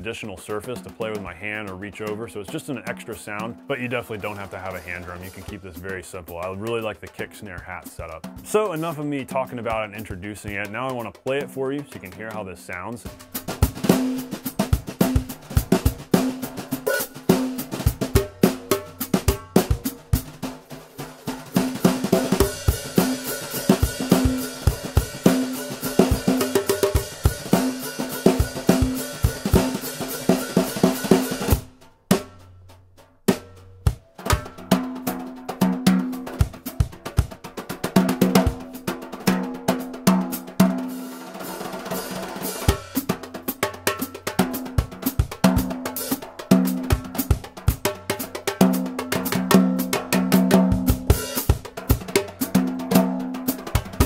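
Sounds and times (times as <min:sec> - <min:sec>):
drum kit groove: 0:00.0 - 0:54.0.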